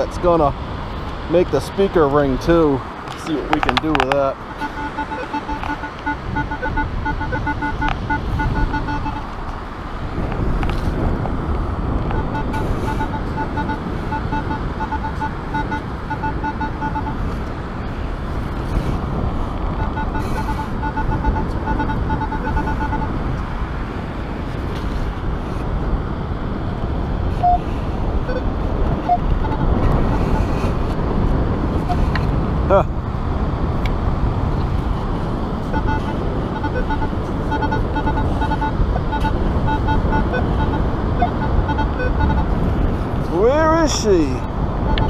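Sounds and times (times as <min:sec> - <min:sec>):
wind noise on microphone: 0:00.0 - 0:45.0
metal detector pulsing buzzy tone: 0:04.5 - 0:09.4, 0:12.1 - 0:17.2, 0:19.8 - 0:23.2, 0:35.6 - 0:42.6.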